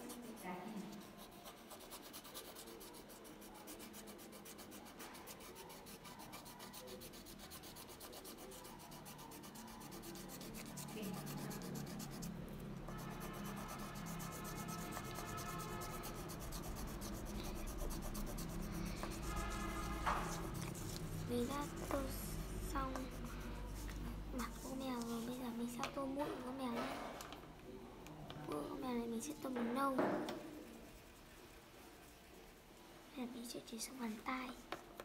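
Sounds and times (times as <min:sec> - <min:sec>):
pencil scratching on paper: 0:00.0 - 0:26.9.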